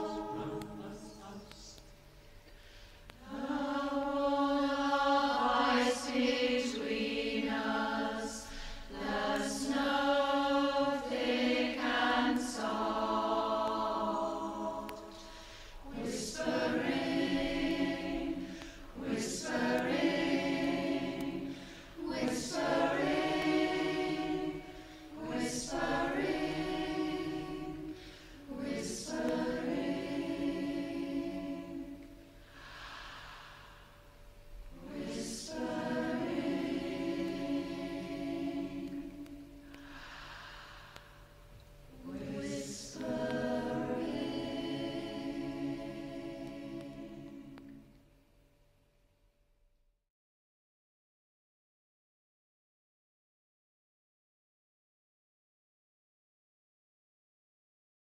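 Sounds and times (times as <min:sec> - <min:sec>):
choir singing: 0:00.0 - 0:01.8, 0:03.2 - 0:33.4, 0:34.6 - 0:39.9, 0:41.9 - 0:48.0.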